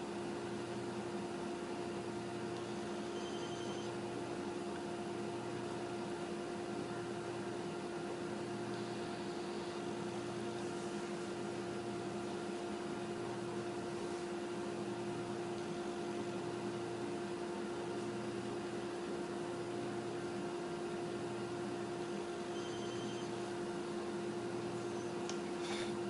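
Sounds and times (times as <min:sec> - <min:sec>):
machine hum with tone: 0:00.0 - 0:26.0.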